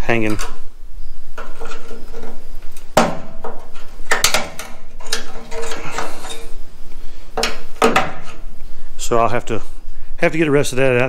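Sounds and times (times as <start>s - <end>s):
screwdriver scraping metal: 5.0s - 6.6s.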